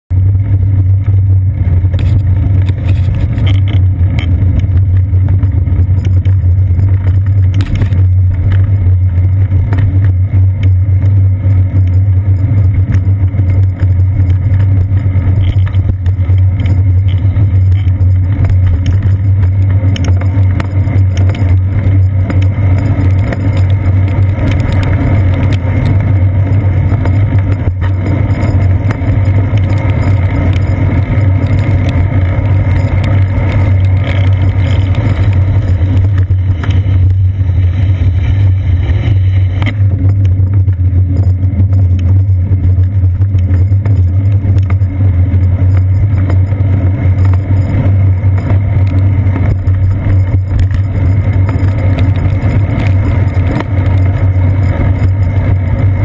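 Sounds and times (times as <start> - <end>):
wind and road rumble: 0.0 - 56.0.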